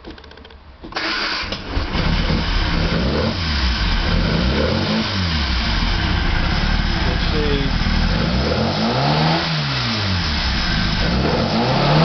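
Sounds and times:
engine revving: 1.0 - 12.0.

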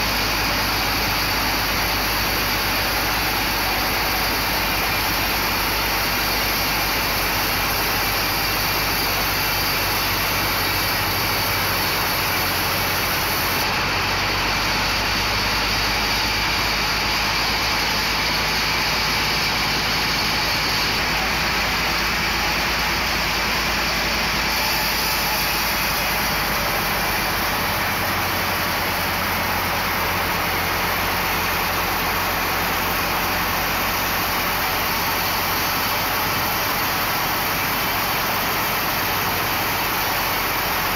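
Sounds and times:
band saw cutting log: 0.0 - 13.7, 23.8 - 29.7.

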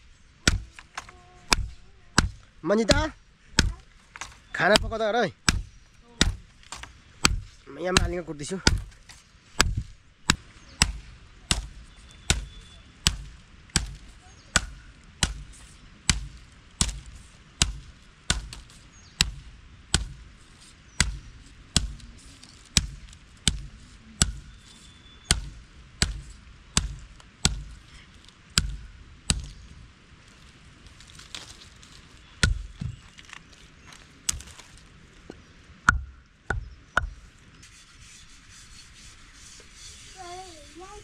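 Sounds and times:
chopping knocks: 0.4 - 14.0, 35.9 - 37.2.

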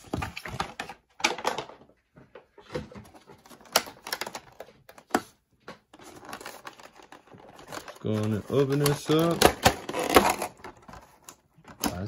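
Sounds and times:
plastic tray crackling and clicking: 6.0 - 12.0.

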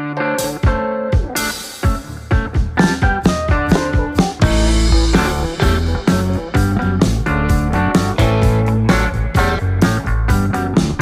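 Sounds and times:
background music: 0.0 - 11.0
steady drum beat: 0.5 - 11.0.

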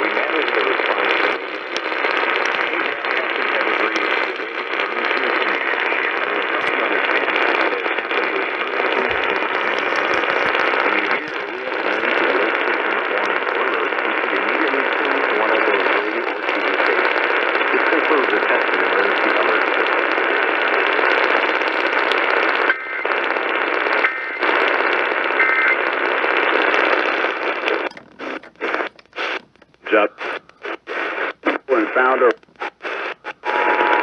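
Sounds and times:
crackle: 0.0 - 34.0
radio static hiss: 0.0 - 34.0.

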